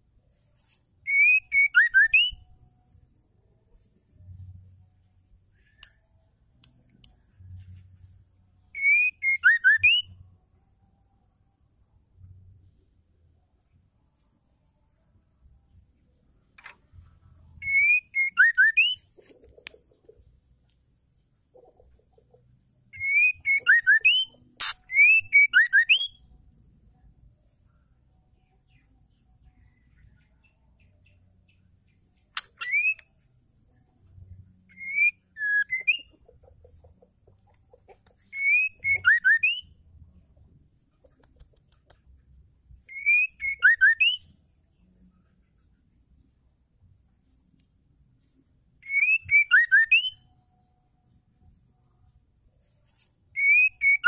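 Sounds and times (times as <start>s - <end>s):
bird singing whistled notes: 1.0s - 2.6s, 8.6s - 10.3s, 17.6s - 19.1s, 22.9s - 26.4s, 32.4s - 33.2s, 34.3s - 36.2s, 38.2s - 39.8s, 42.8s - 44.4s, 48.8s - 50.4s, 53.3s - 54.0s.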